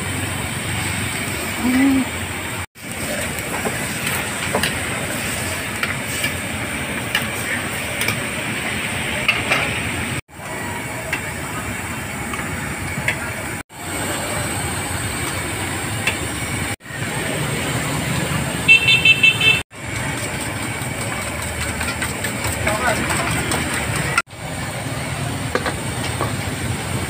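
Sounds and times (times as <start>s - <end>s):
traffic hiss: 0.0s - 10.2s.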